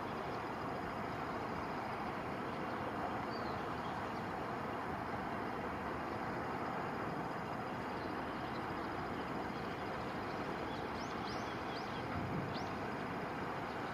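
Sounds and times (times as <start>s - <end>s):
vehicle rumble and hiss: 0.0s - 13.9s.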